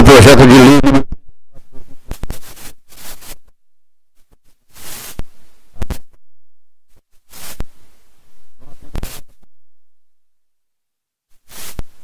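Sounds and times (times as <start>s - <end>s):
hissing rustle: 2.2s - 3.4s, 4.7s - 5.5s, 7.2s - 8.1s, 11.4s - 12.0s.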